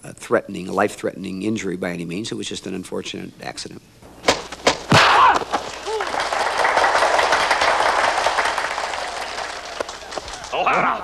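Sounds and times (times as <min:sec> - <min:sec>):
punch smacks: 0:04.2 - 0:05.6
person shouting: 0:05.0 - 0:06.2
crowd shouting and cheering: 0:05.0 - 0:11.0.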